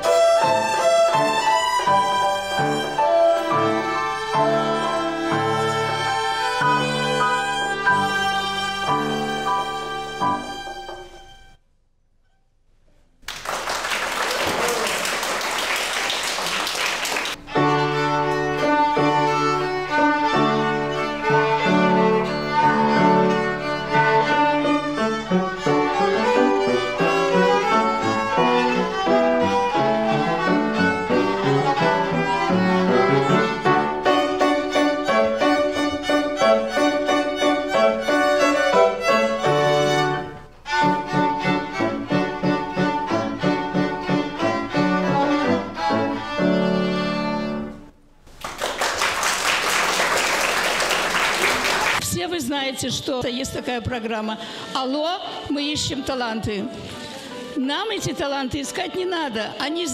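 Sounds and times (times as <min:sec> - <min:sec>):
violin ensemble playing: 0:00.0 - 0:11.6, 0:17.4 - 0:47.9
applause: 0:13.2 - 0:17.4, 0:48.3 - 0:52.0.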